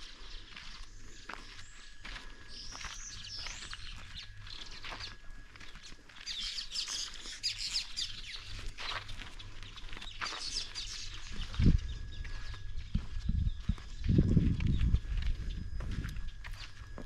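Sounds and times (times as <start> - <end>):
birds chirping and singing: 0.0 - 17.0
footsteps on a dirt path: 0.0 - 17.0.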